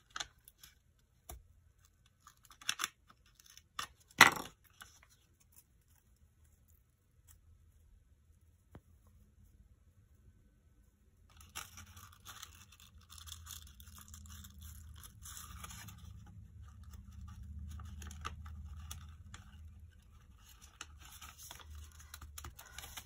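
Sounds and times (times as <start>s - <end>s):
small scrapes and clicks: 4.6s - 7.8s
paper rustling and crinkling: 11.3s - 23.0s.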